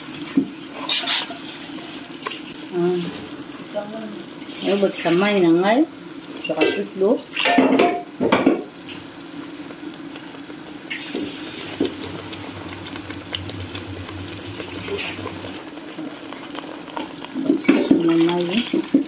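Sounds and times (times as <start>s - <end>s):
sauce bubbling and sizzling: 0.0s - 19.0s
water poured into a pan: 10.9s - 19.0s.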